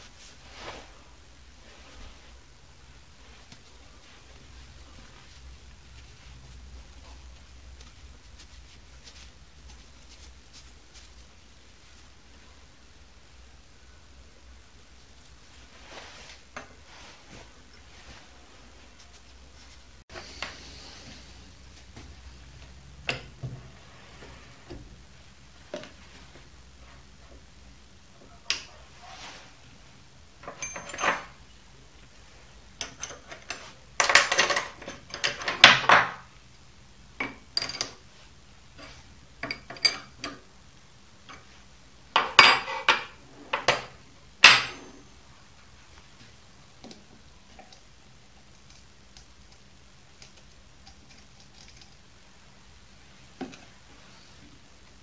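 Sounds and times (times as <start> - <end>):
metal clinks and scrapes: 30.4 - 31.4.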